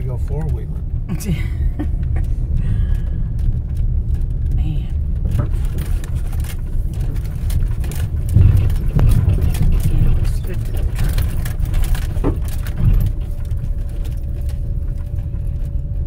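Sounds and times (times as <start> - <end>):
car driving on dirt road: 0.0 - 16.0
knocks and rattles: 0.0 - 16.0.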